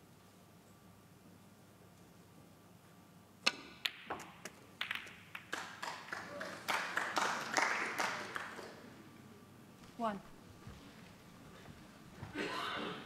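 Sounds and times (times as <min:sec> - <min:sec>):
snooker balls clicking: 0:03.4 - 0:06.1
audience applause: 0:05.5 - 0:08.8.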